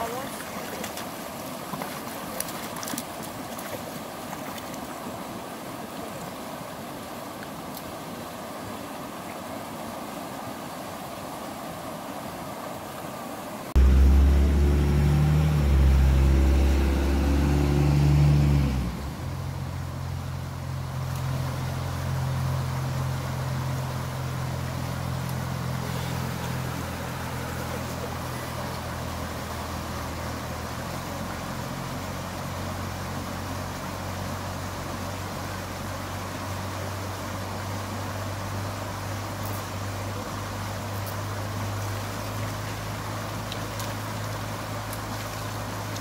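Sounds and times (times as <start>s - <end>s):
river water rushing: 0.0s - 46.0s
vehicle engine hum: 13.7s - 46.0s.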